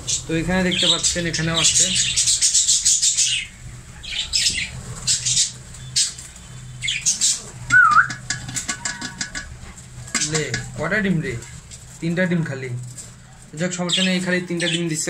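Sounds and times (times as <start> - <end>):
budgerigars chattering: 0.0 - 11.5, 13.3 - 15.0
whistled bird note: 7.7 - 8.2.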